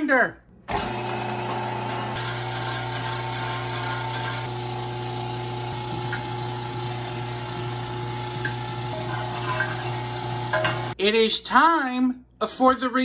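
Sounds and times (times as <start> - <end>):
electric meat grinder running: 0.7 - 11.0.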